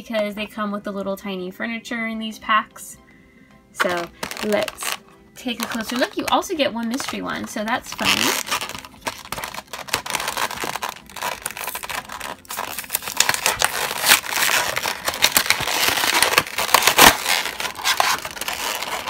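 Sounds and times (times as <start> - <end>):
cardboard tearing: 3.8 - 19.0
plastic packaging crinkling: 3.8 - 19.0.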